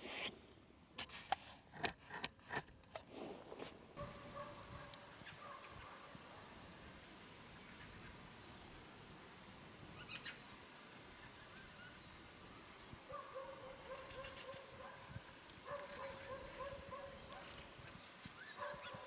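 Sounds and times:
birds calling rapidly: 10.0s - 14.9s, 15.7s - 19.0s.

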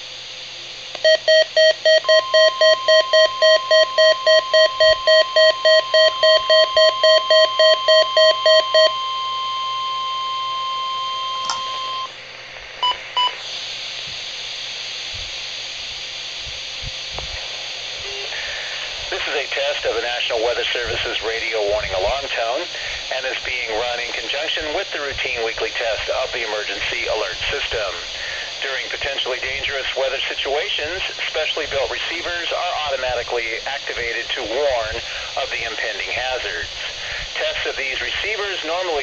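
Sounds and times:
rapid pulsing beeps: 1.0s - 10.5s
short beeps: 1.0s - 12.1s
steady alarm tone: 1.0s - 12.2s
radio hiss: 13.0s - 39.0s.

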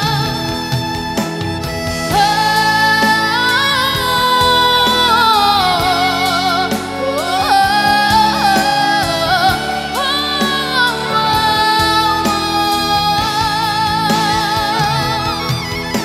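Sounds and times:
instrumental backing: 0.0s - 16.0s
person singing with vibrato: 0.0s - 16.0s.

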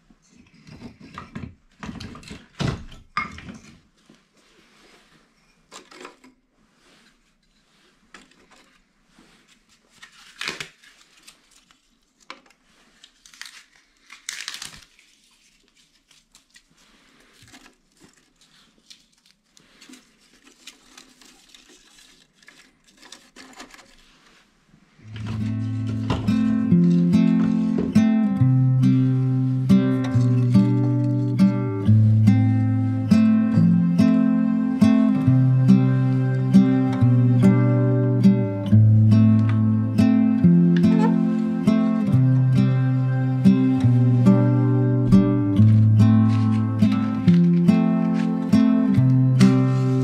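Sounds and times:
bark rustling and crinkling: 8.1s - 24.4s.

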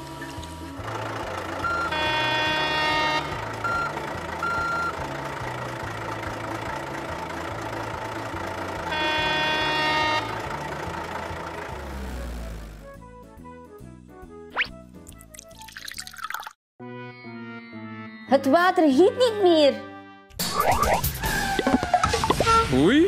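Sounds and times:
truck engine rumble: 0.0s - 13.5s
truck horn blasts: 0.9s - 6.2s, 7.2s - 13.1s.

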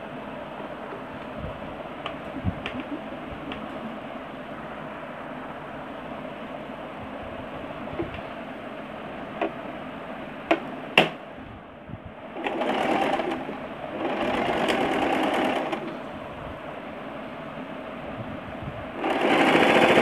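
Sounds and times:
sewing machine stitching: 12.4s - 16.0s, 19.0s - 20.0s.

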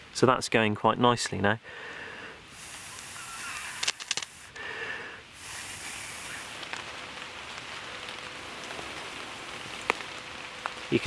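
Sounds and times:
light rain pattering: 0.0s - 11.0s
person blowing on tinder: 2.5s - 6.5s.

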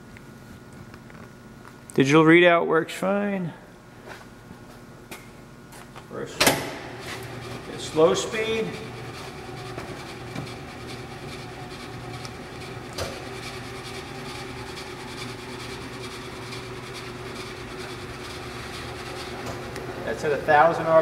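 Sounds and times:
lathe humming: 6.6s - 21.0s.

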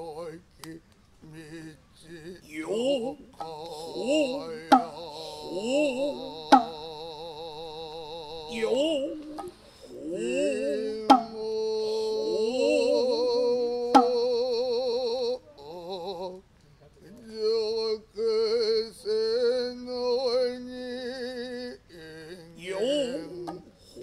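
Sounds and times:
man chanting: 0.0s - 24.0s
shoulder drum strikes: 11.1s - 11.4s, 14.0s - 14.2s.

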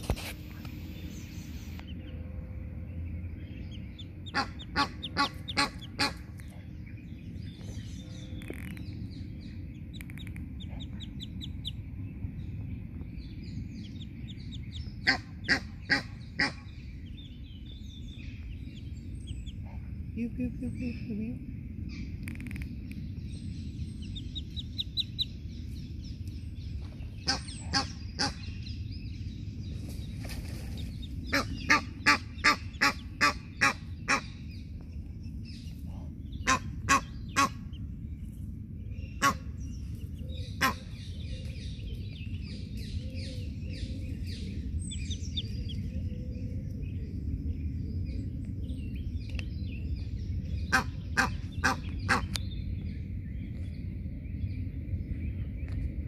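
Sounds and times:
goslings peeping: 0.0s - 21.0s, 21.9s - 38.4s, 39.0s - 41.5s, 42.2s - 46.9s, 50.3s - 52.8s.

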